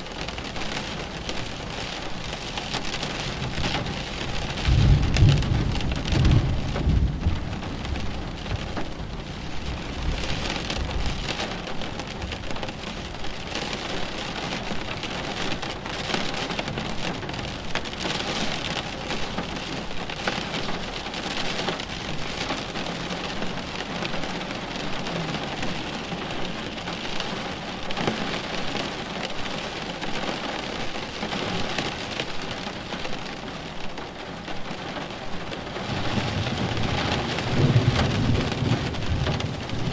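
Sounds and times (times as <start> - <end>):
heavy rain falling: 0.0 - 39.9
low rumble of thunder: 3.3 - 12.5, 35.8 - 39.9.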